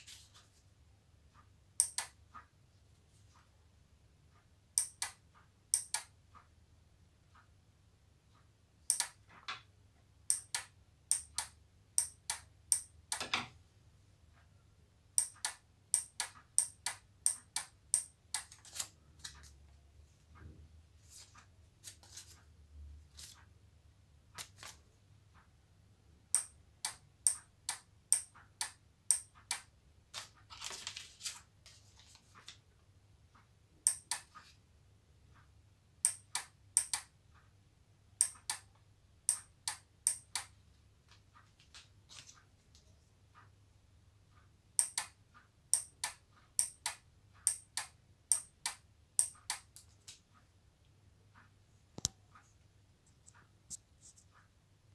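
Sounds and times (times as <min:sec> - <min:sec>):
paper rustling: 0:00.0 - 0:00.6, 0:30.1 - 0:32.6.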